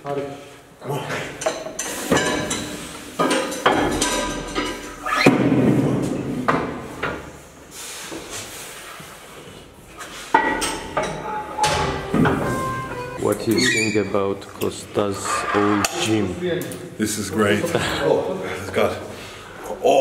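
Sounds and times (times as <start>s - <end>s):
weight plates clanking on metal: 1.4s - 5.2s, 10.4s - 14.1s.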